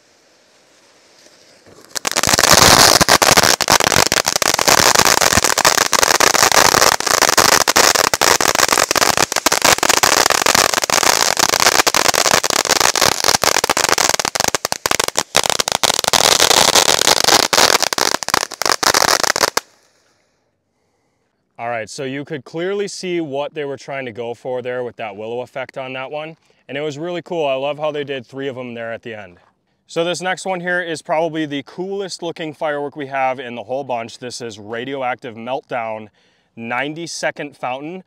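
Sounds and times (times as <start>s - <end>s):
firework fountain crackling: 0.0s - 20.0s
firework fountain hissing: 0.0s - 20.0s.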